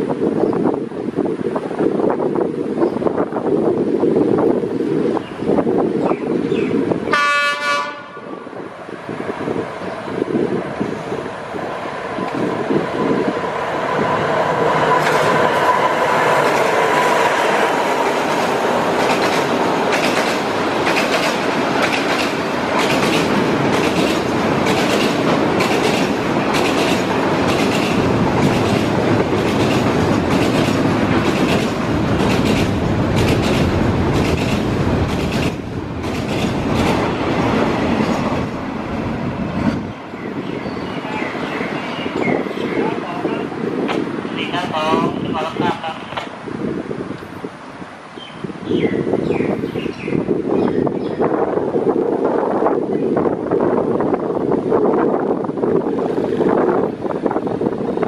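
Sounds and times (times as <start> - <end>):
freight train wagons rumbling: 0.1 - 48.0
wheels clicking over rail joints: 18.0 - 38.5.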